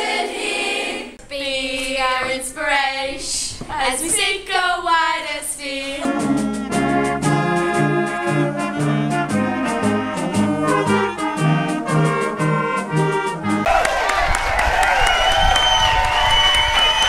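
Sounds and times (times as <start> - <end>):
concert band playing: 6.0 - 13.8.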